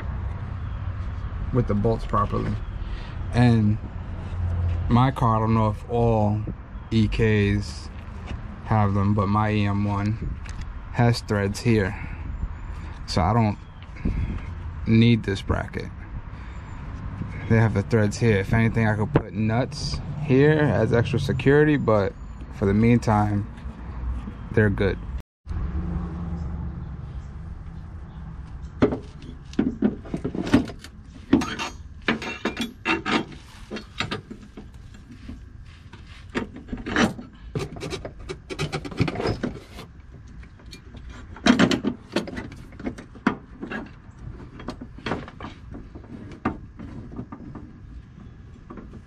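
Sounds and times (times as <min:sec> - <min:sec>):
metal part knocks and scrapes: 0:28.7 - 0:40.0.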